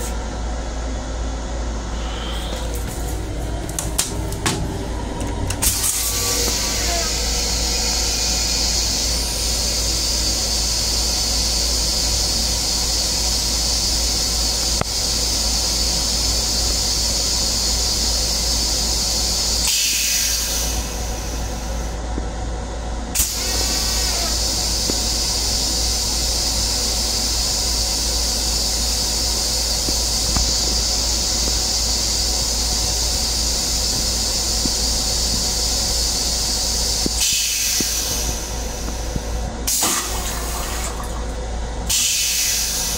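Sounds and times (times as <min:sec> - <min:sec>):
railcar low rumble: 0:00.0 - 0:42.9
railcar ventilation hiss: 0:00.0 - 0:42.9
faint squeal: 0:01.9 - 0:02.8, 0:05.7 - 0:09.1.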